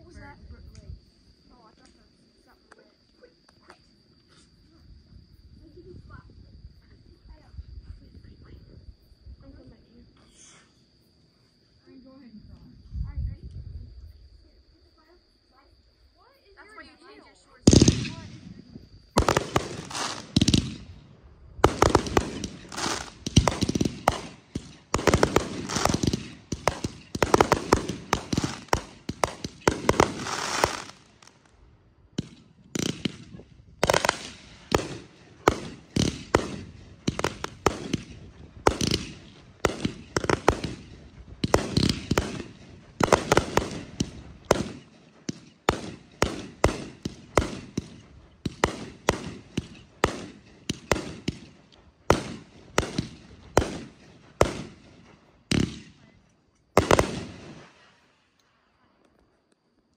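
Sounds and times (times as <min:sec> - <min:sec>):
fireworks banging: 0:17.7 - 0:31.5, 0:32.1 - 0:56.1, 0:56.7 - 0:57.8.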